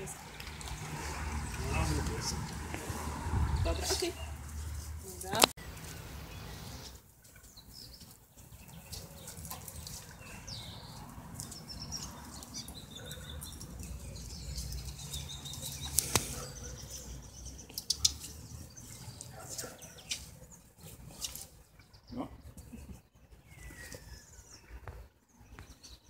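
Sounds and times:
wind buffeting microphone: 2.6s - 4.1s.

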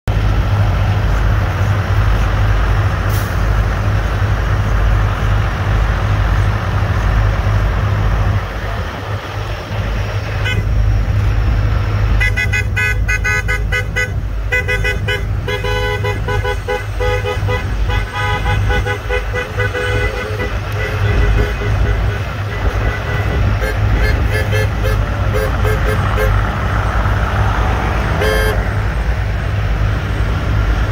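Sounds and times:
traffic rumble: 0.0s - 30.9s
vehicle horns honking: 10.3s - 10.8s, 12.1s - 26.5s, 28.1s - 28.8s.

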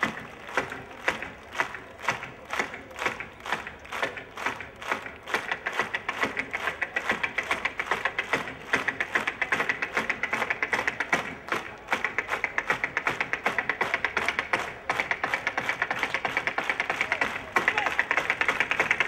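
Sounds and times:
tap shoes on stage floor: 0.0s - 19.0s.

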